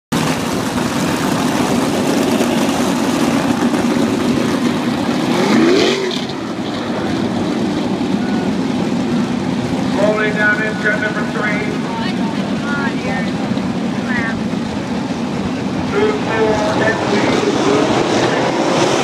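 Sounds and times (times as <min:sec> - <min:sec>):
race car engines running: 0:00.1 - 0:19.0
engine revving up: 0:02.3 - 0:07.3, 0:15.8 - 0:19.0.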